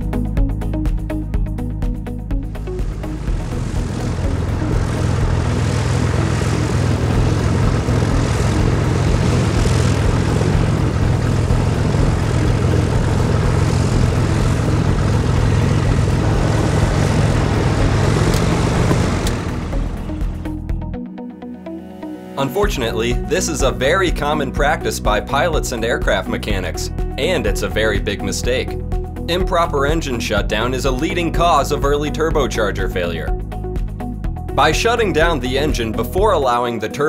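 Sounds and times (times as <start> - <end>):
light airplane engine droning: 2.4 - 20.6.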